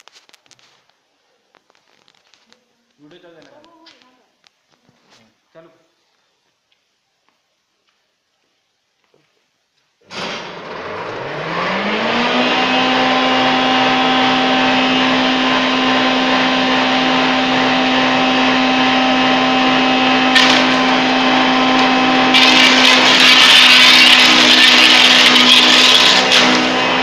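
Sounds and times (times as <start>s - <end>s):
wood chipper running: 10.1s - 27.0s
wood being chipped: 20.2s - 27.0s.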